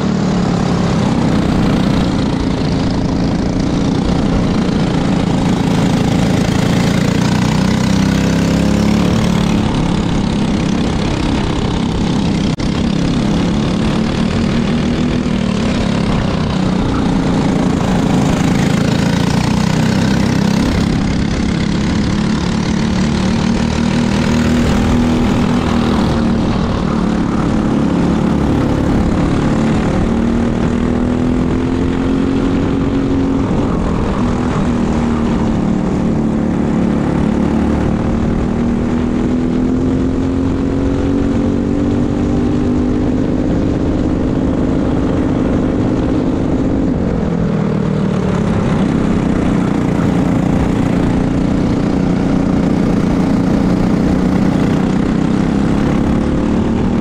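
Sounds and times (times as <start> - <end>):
kart engine racing: 0.0 - 57.0
wind noise: 0.0 - 57.0.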